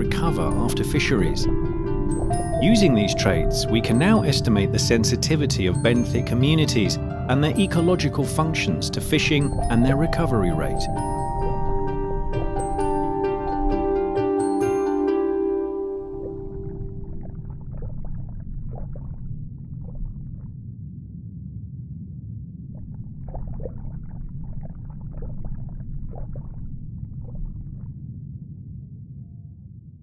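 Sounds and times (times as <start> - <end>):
underwater low rumble: 0.0 - 14.5, 15.7 - 30.0
bubbly crackles and clicks: 16.0 - 20.7, 22.7 - 28.1.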